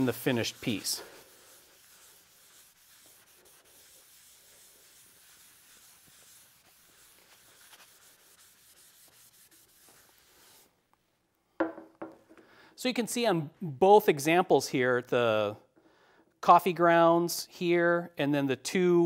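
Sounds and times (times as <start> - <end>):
rag rubbing on wooden board: 0.0 - 10.6.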